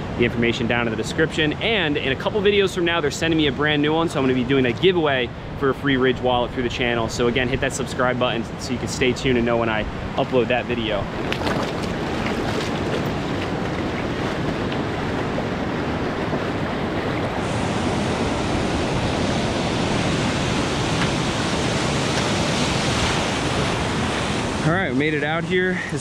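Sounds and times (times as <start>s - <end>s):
surf washing around rocks: 0.0s - 26.0s
wind on microphone: 11.0s - 24.7s
splashing steps in shallow water: 11.1s - 17.4s.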